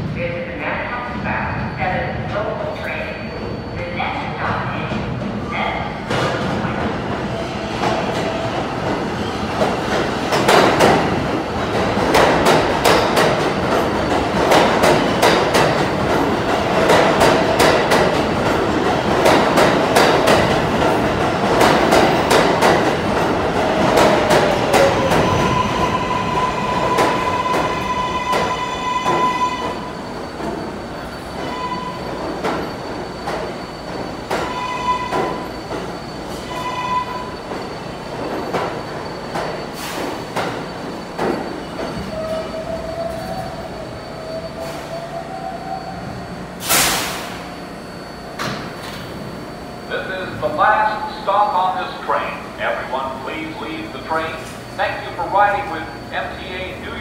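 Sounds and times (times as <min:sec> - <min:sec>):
falling whine of slowing train: 0:00.0 - 0:57.0
subway train rumbling: 0:00.0 - 0:57.0
high brake squeal: 0:02.9 - 0:04.1, 0:25.0 - 0:48.7.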